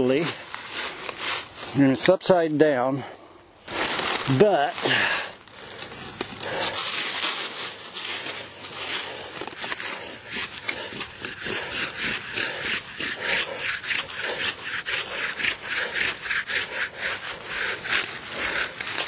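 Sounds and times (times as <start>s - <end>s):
scrubbing on stone: 5.9s - 19.0s.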